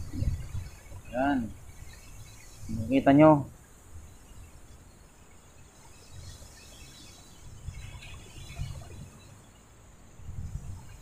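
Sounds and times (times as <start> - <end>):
wind buffeting microphone: 0.0 - 2.9, 6.1 - 9.4, 10.1 - 11.0.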